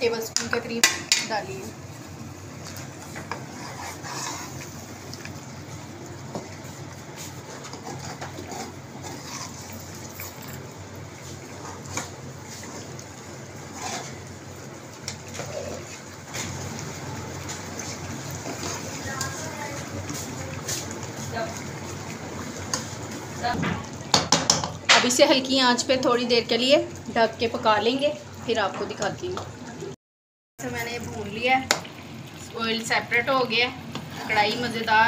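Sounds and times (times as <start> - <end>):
metal spoon scraping pan: 3.2 - 4.7, 7.5 - 10.4, 13.7 - 14.3.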